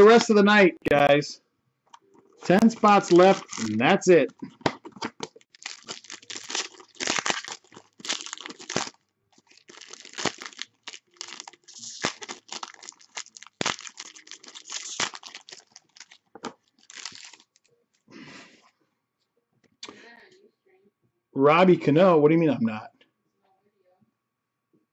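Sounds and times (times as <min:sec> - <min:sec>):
shiny wrapper crinkling: 0:02.4 - 0:03.9, 0:04.9 - 0:18.0.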